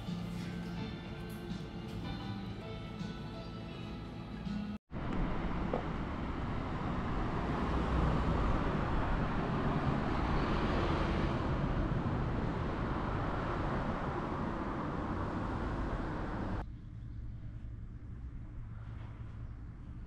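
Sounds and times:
road traffic rushing: 5.0 - 16.6
vehicle passing by: 5.6 - 16.6.

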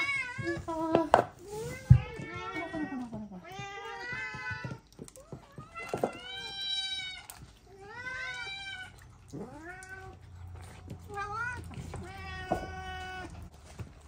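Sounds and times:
cat meowing: 1.7 - 10.2, 11.0 - 13.5.

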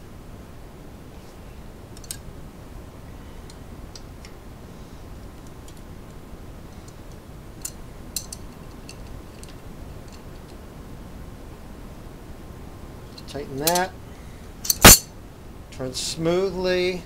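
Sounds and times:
low hiss: 0.0 - 17.0.

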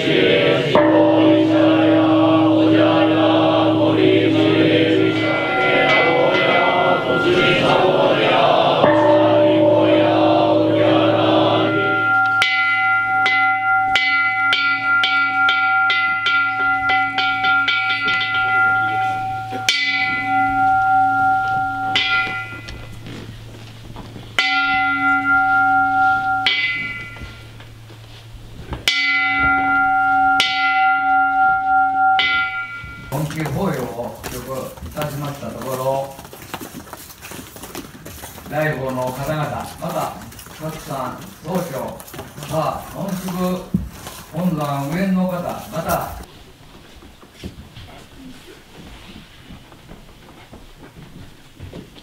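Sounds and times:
voices chanting: 0.0 - 23.2
temple bell ringing: 0.0 - 36.3.

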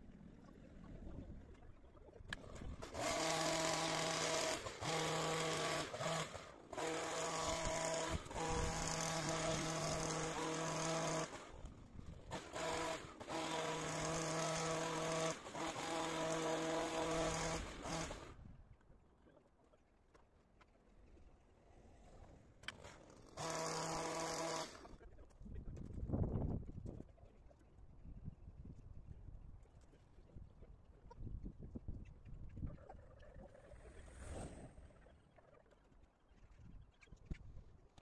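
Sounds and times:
hedge trimmer cutting: 2.3 - 18.4, 22.6 - 25.0.

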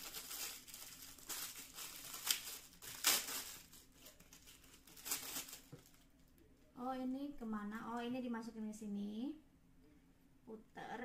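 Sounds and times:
plastic packaging crinkling: 0.0 - 6.4.

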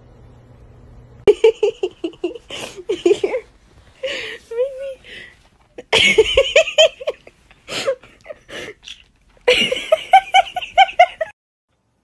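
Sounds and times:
person giggling: 1.3 - 5.0, 5.8 - 11.4.

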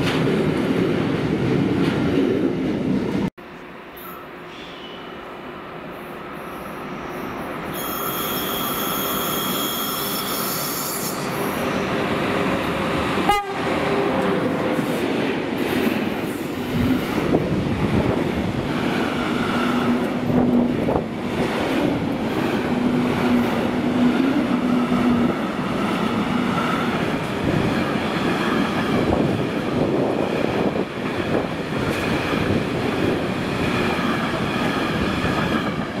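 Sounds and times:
wheel squeal: 7.0 - 11.7
train horn blast: 7.7 - 11.4, 13.2 - 14.3.

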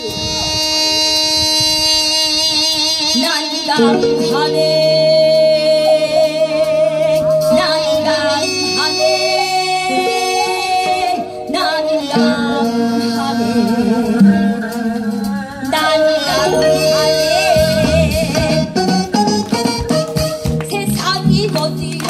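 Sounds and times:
amplified instrumental backing music: 0.0 - 22.0
woman singing with vibrato: 2.9 - 19.2, 20.7 - 22.0.

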